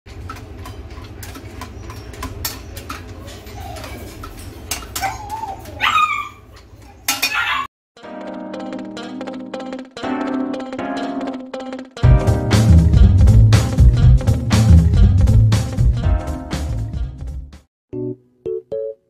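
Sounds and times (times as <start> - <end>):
dog whining: 0.9 - 7.7
guitar music: 8.0 - 17.2.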